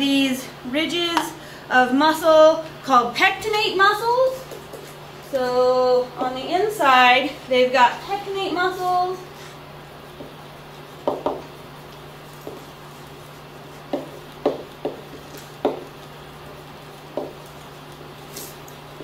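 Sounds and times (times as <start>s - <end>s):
marker tapping on whiteboard: 11.0s - 11.5s, 13.9s - 16.0s, 17.1s - 17.4s.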